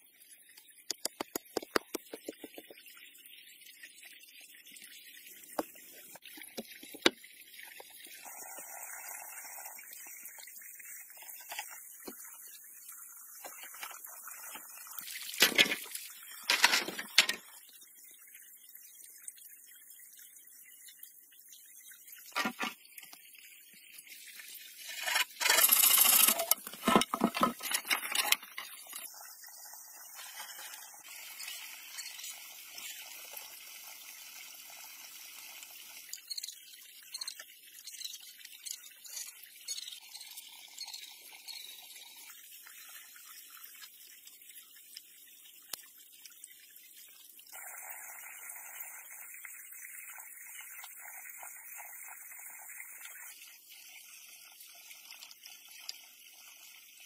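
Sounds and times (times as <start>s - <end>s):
wooden poles knocking and scraping: 24.9s - 29.0s.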